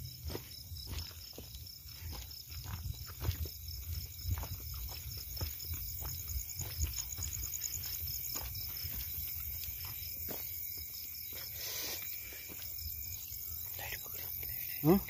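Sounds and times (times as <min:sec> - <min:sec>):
footsteps through grass: 0:00.0 - 0:13.6
crickets chirping: 0:00.0 - 0:15.0.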